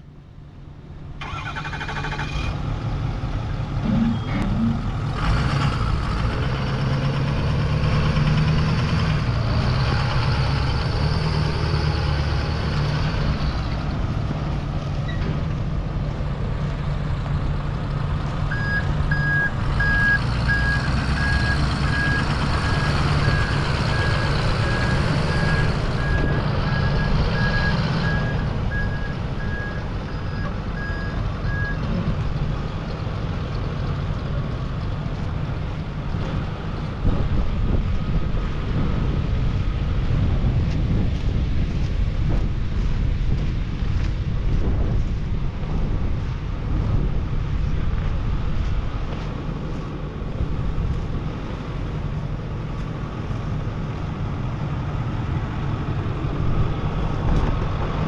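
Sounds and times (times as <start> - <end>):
reversing alarm beeping: 18.5 - 31.8.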